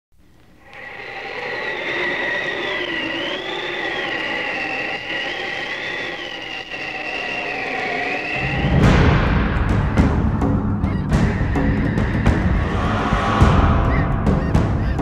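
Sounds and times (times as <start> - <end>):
synthesized drone of held tones: 0.6 - 9.0.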